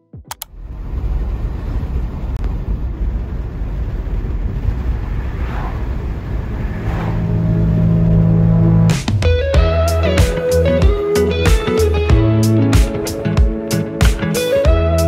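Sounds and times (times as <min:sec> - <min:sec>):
low hum: 0:00.3 - 0:09.0
car tyres and engine rumbling: 0:00.3 - 0:09.3.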